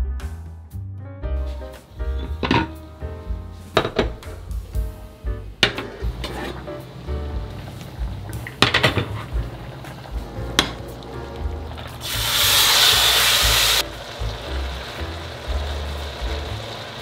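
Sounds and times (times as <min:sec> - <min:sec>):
food sizzling in frying pan: 0:05.6 - 0:17.0.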